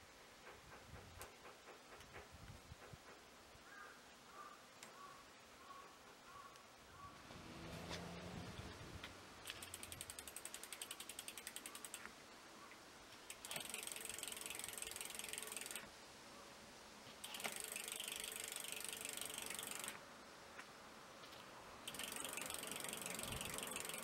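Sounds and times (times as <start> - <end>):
bicycle freehub ratcheting: 9.4 - 12.1, 13.3 - 15.9, 17.2 - 20.0, 21.9 - 24.0.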